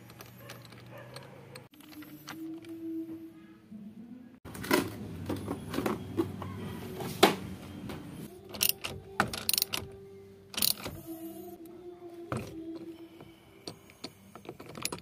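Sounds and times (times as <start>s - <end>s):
metallic clinks and knocks: 0.0s - 2.8s, 13.6s - 15.0s.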